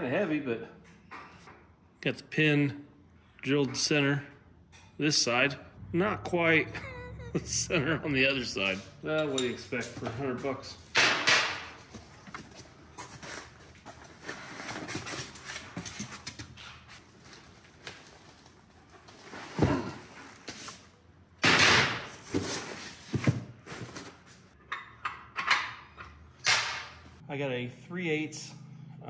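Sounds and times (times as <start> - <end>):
cardboard and foam packing handled: 11.9 - 20.9.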